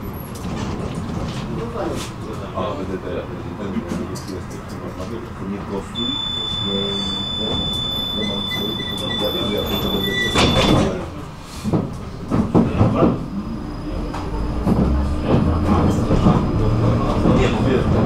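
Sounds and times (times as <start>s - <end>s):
tram clunks: 0.0s - 18.0s
high door warning beep: 6.0s - 11.0s
sliding doors closing thud: 10.2s - 11.0s.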